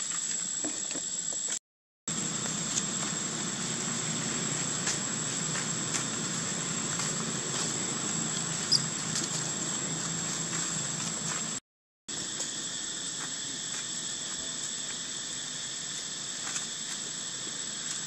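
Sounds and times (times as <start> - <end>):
insects buzzing: 0.0 - 18.0
light clicks of leaves: 2.2 - 11.5, 16.4 - 18.0.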